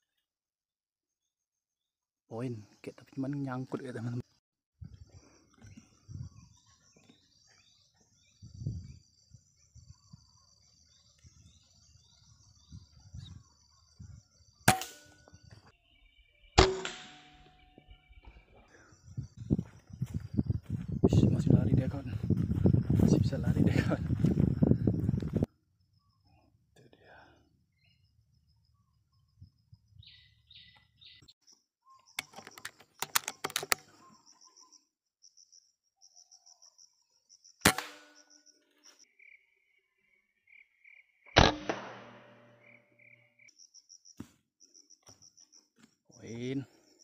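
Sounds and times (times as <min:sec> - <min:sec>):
rifle shots: 0:16.6 - 0:17.5, 0:37.6 - 0:38.2, 0:41.4 - 0:42.6
high pulsing chirping call: 0:27.8 - 0:33.0, 0:33.8 - 0:41.3
sharp clicks and knocks: 0:32.2 - 0:33.9.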